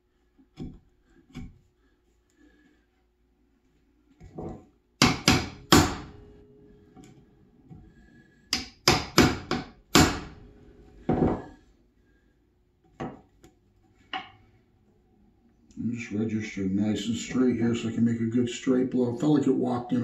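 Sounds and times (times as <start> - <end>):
hammer striking chisel: 5.0 - 6.2, 8.5 - 10.5.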